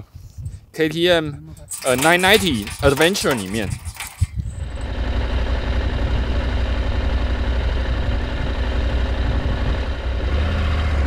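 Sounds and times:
motorcycle engine idling: 4.4 - 10.2.

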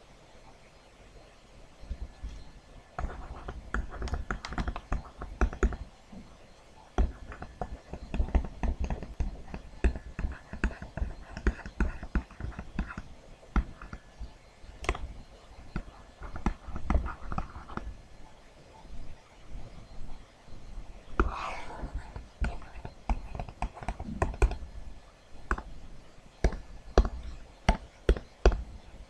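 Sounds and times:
stylus tapping on tablet screen: 3.0 - 5.9, 6.9 - 17.9, 21.2 - 24.7, 25.4 - 25.8, 26.4 - 29.0.

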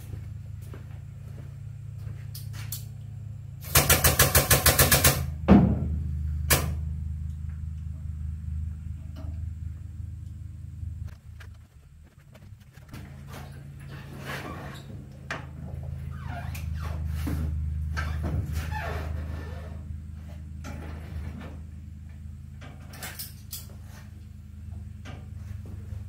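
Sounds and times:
low hum: 0.0 - 26.0
impact wrench hammering: 3.6 - 5.9.

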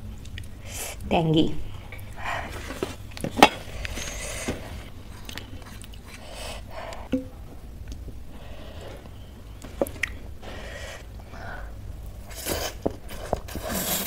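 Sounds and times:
chewing: 5.1 - 6.3.

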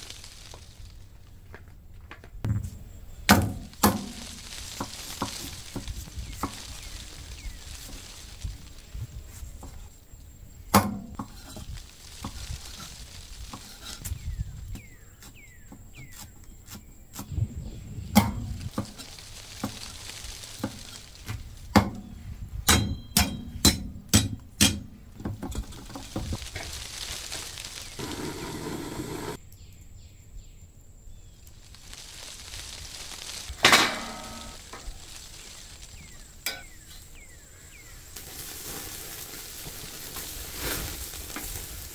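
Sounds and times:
rough burst of noise: 26.2 - 29.4.

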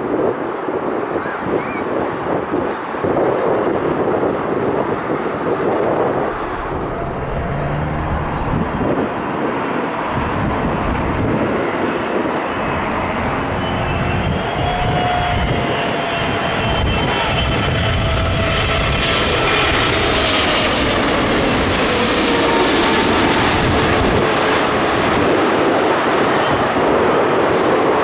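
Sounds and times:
jet airliner engine noise: 0.0 - 28.0
wind buffeting microphone: 0.0 - 28.0
whine of thin tones: 5.5 - 9.4.

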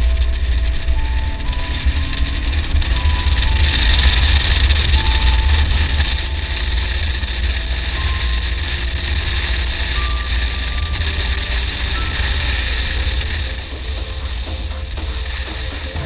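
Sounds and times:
motorcycle engine rumble: 0.0 - 16.0
wind and tyre hiss: 0.0 - 16.0.

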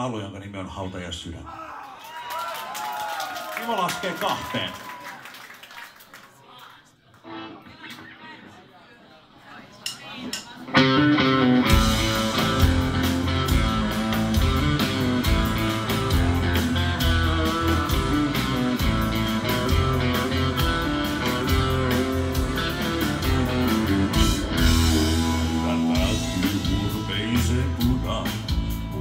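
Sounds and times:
rock band playing live: 10.4 - 29.0.

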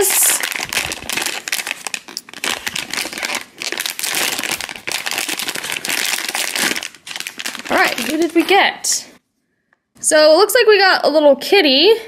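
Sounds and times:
foil wrapper crinkling: 0.0 - 8.7.

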